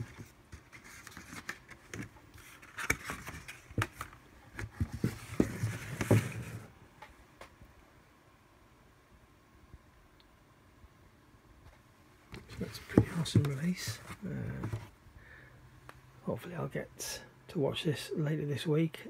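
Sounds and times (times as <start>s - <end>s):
cardboard packaging rustling: 0.0s - 6.7s.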